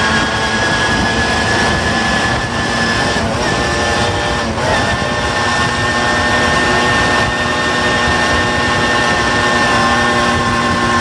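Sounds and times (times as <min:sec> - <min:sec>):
moped engine at high revs: 0:00.0 - 0:11.0
wind on microphone: 0:00.0 - 0:11.0.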